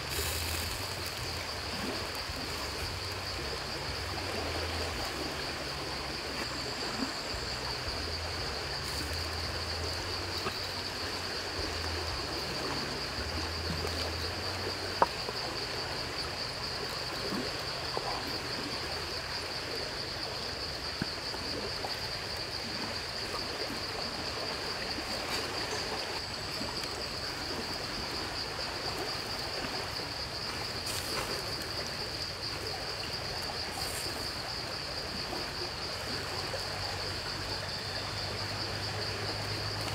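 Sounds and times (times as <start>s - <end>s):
soft even hiss: 0.0s - 15.7s, 30.5s - 32.0s
high-pitched insect chorus: 0.0s - 39.9s.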